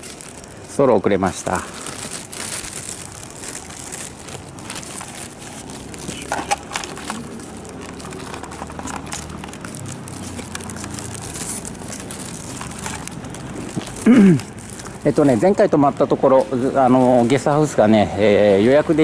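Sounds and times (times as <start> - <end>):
faint vehicle hum: 0.0 - 19.0
street background: 0.0 - 19.0
camera handling rustling and clicks: 4.4 - 14.0.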